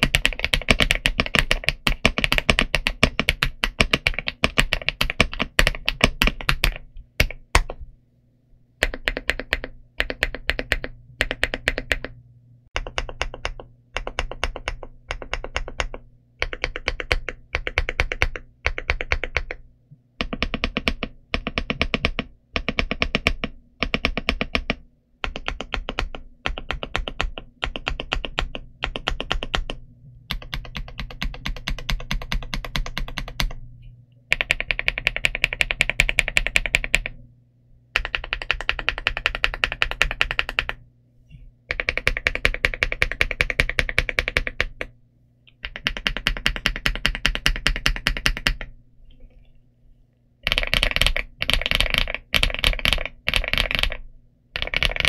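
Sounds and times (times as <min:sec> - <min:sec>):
typing on mechanical keyboard: 0:00.0 - 0:07.8, 0:08.8 - 0:12.2, 0:12.8 - 0:19.6, 0:20.2 - 0:33.6, 0:34.3 - 0:37.2, 0:38.0 - 0:40.8, 0:41.7 - 0:44.9, 0:45.5 - 0:48.8, 0:50.4 - 0:55.0.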